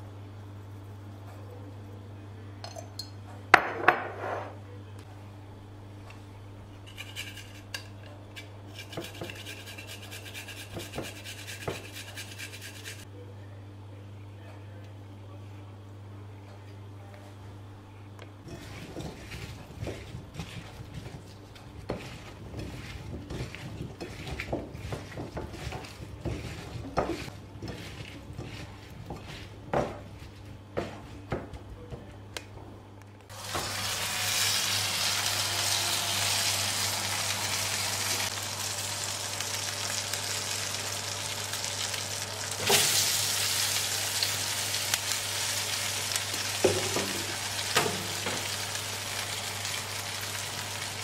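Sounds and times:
garlic scraping on metal grater: 8.4 - 13.0, 18.5 - 30.0.

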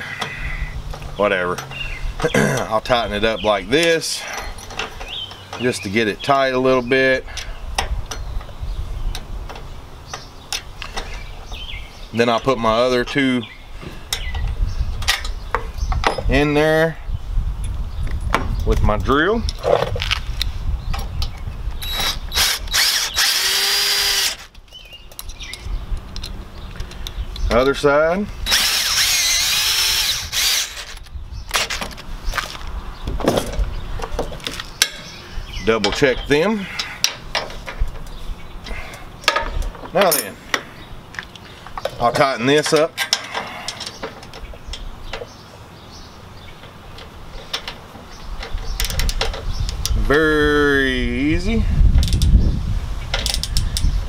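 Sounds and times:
drill driving screw into steel: 21.8 - 24.5, 28.5 - 31.0.

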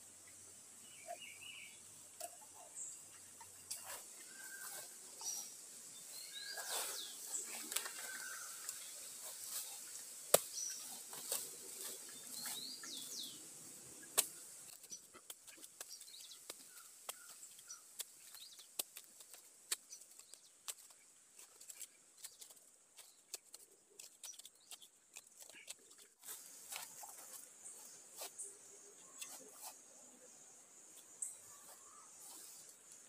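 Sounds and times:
bird chirping: 0.2 - 18.8, 21.7 - 32.8
dry leaves crackling underfoot: 3.8 - 13.4, 14.0 - 28.4.

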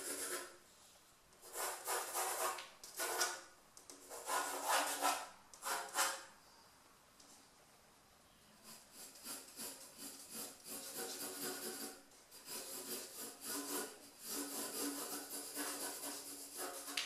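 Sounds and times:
pencil scratching on paper: 0.0 - 0.5, 1.4 - 3.4, 4.0 - 6.3, 8.6 - 17.0.

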